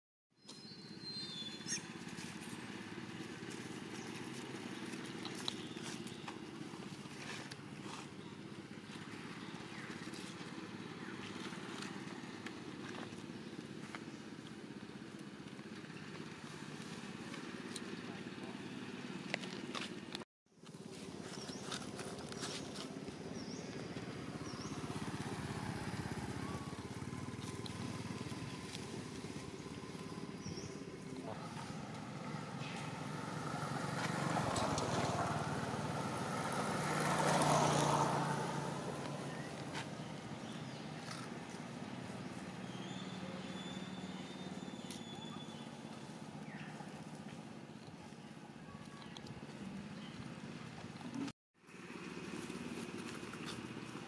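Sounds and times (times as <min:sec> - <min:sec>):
motor engine droning: 0:20.7 - 0:54.0.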